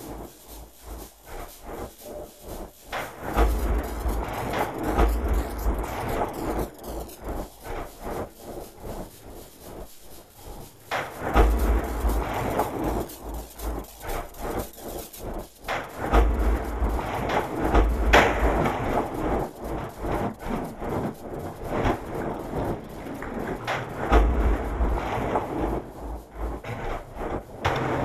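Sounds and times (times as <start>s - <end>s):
deep rumble: 3.3s - 9.9s.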